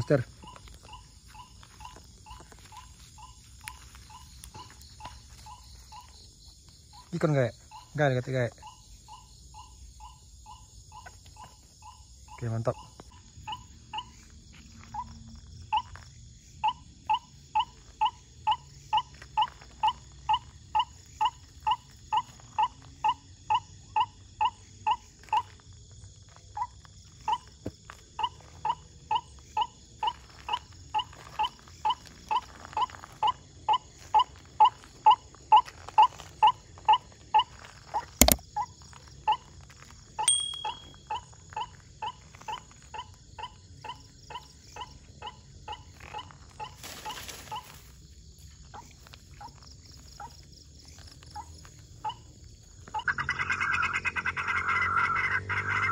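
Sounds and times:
night insects droning: 0:00.0 - 0:55.9
bird calling repeated notes: 0:40.2 - 0:41.3.

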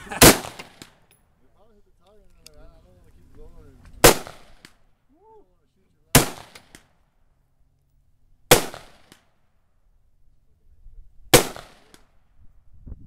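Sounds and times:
rifle shots with echo: 0:00.2 - 0:01.1, 0:04.0 - 0:04.8, 0:06.1 - 0:07.0, 0:08.5 - 0:09.4, 0:11.3 - 0:12.2.

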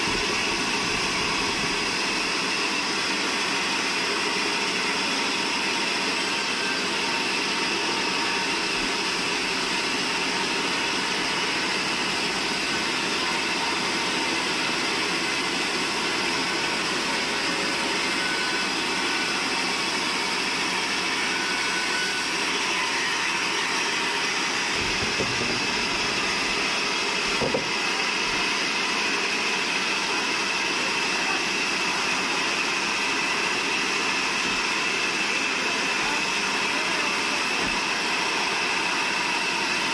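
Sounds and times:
band sawmill whine and hiss: 0:00.0 - 0:39.9
short knocks: 0:24.8 - 0:25.8.

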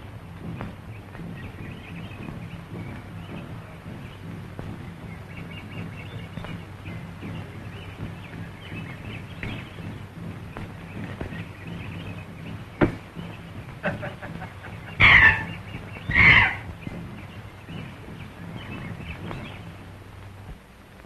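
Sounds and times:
film soundtrack hum: 0:00.0 - 0:21.0
monkeys screeching: 0:13.8 - 0:16.7.

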